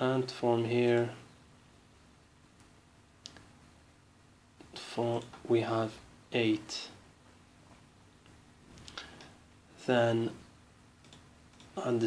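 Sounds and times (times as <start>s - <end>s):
room hiss: 0.0s - 12.0s
person speaking: 4.6s - 7.0s, 8.8s - 10.5s, 11.6s - 12.0s.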